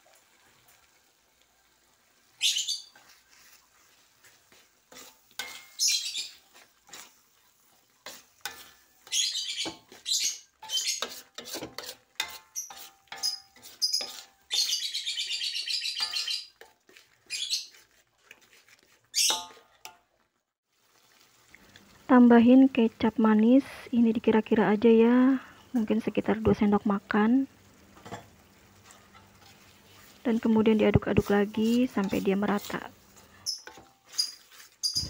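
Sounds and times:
metal spatula scraping a wok: 2.9s - 14.8s, 16.0s - 20.3s, 28.8s - 35.0s.

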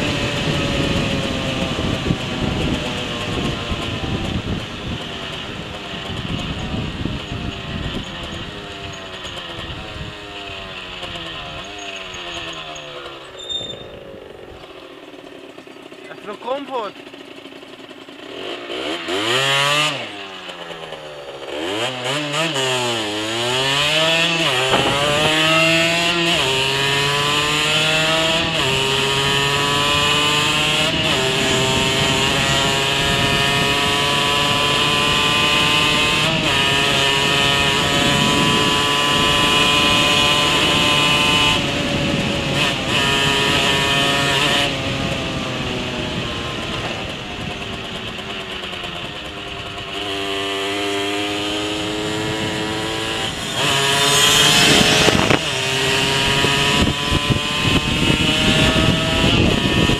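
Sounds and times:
moped engine accelerating: 0.0s - 59.9s.

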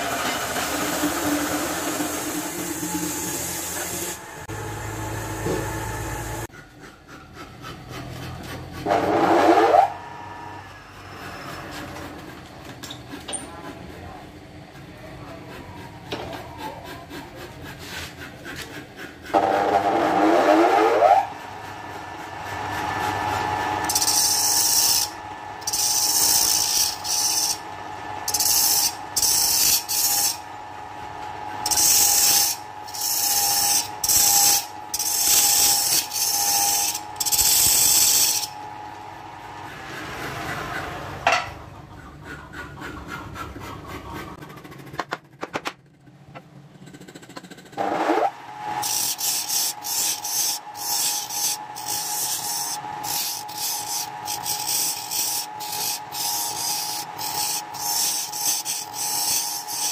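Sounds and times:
wood lathe motor whine: 0.0s - 6.5s, 47.8s - 59.9s
tool scraping spinning wood: 0.0s - 59.9s.

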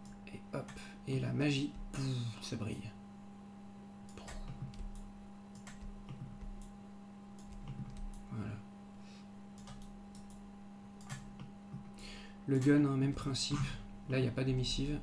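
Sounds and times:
low electrical hum: 0.0s - 15.0s
computer mouse and keyboard clicks: 4.1s - 6.7s, 7.4s - 8.3s, 9.6s - 10.4s, 11.0s - 11.9s.

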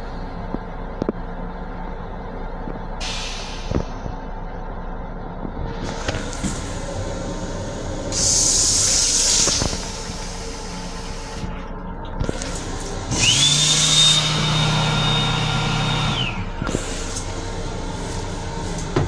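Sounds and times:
train rumble: 0.0s - 13.4s, 16.2s - 19.0s
small electric motor whining: 12.4s - 16.4s.

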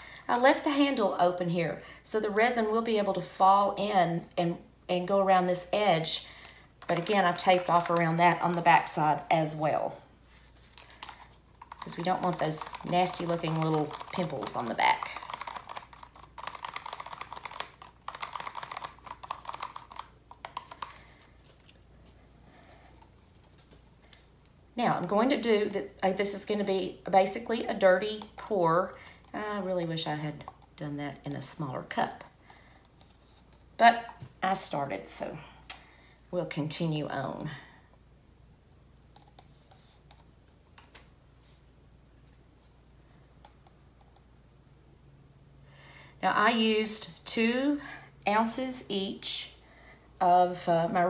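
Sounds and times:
plastic cup clicking and scraping: 6.8s - 8.6s, 10.3s - 21.8s.

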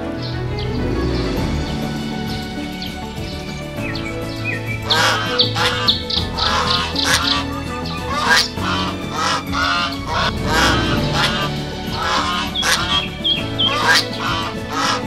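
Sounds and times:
soft background music: 0.0s - 15.0s
geese honking: 0.8s - 15.0s.

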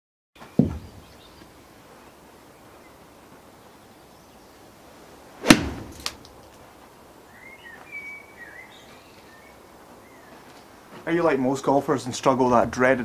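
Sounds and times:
bird chirping: 0.4s - 4.8s, 7.2s - 10.6s
golf club striking ball: 5.4s - 6.3s.

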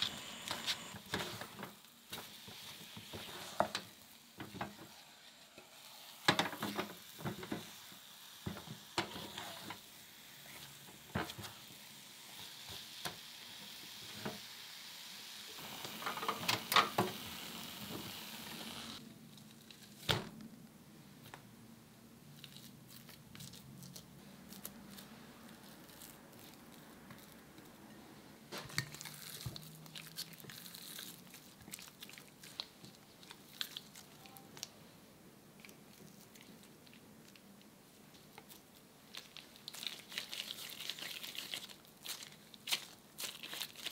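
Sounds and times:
paste sizzling in a pot: 0.0s - 19.0s
sticky squishing of paste: 28.6s - 34.7s, 35.6s - 43.9s.

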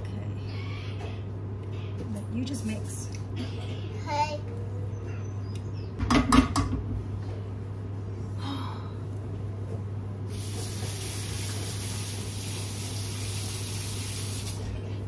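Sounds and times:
steady low hum: 0.0s - 15.0s
tap water running into sink: 10.3s - 14.6s.

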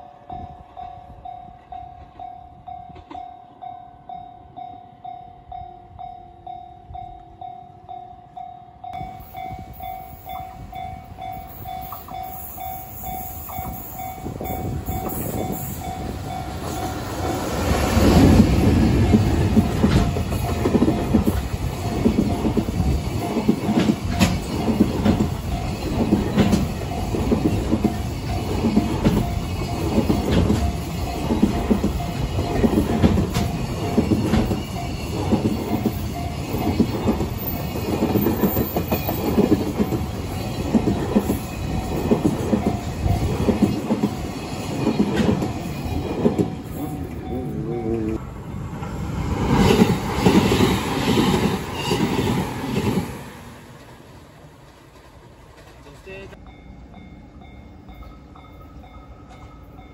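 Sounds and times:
electric locomotive passing: 0.0s - 59.9s
train wheels clattering over rail joints: 14.4s - 46.9s.

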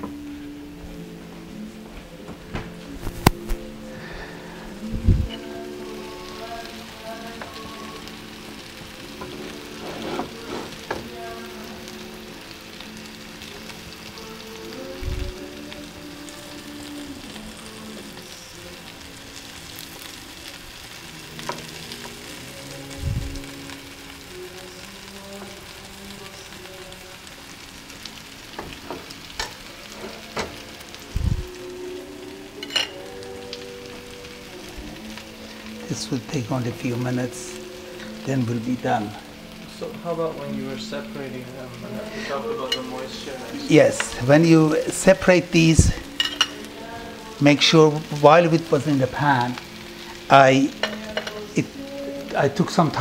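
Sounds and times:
food sizzling in oil: 2.7s - 53.0s
metal spatula scraping pan: 9.4s - 10.8s.

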